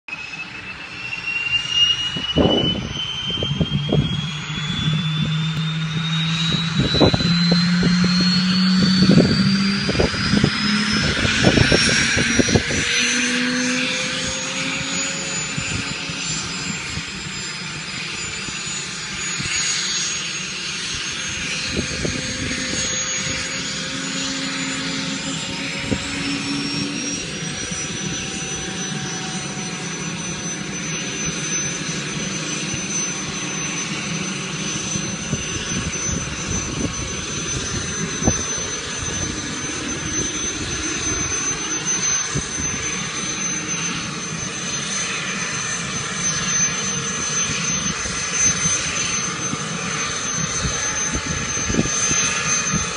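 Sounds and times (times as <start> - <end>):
helicopter turbine whine: 0.0 - 52.9
rotor and engine hum: 0.1 - 52.9
wind buffeting microphone: 2.1 - 18.1, 20.8 - 30.7, 31.8 - 52.9.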